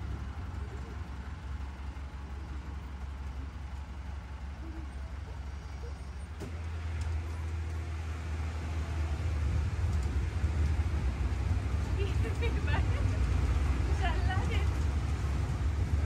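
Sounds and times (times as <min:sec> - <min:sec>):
road train engine hum: 0:00.0 - 0:16.0.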